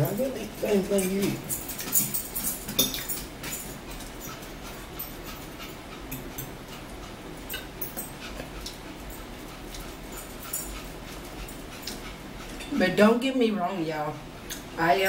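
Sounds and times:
chewing: 0:02.2 - 0:12.8.

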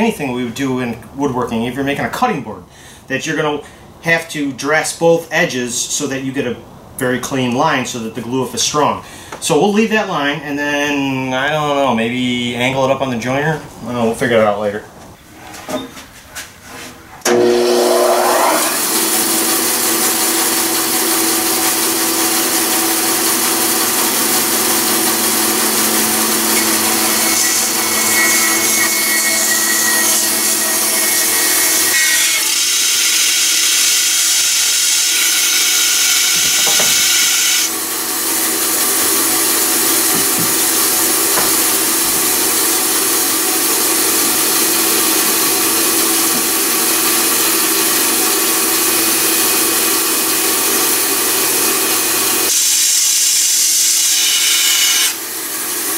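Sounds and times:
bandsaw cutting wood: 0:17.2 - 0:55.9.

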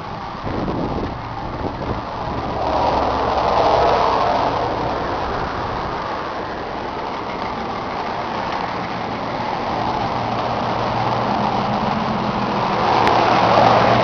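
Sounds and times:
tractor diesel engine idling: 0:04.6 - 0:13.2.

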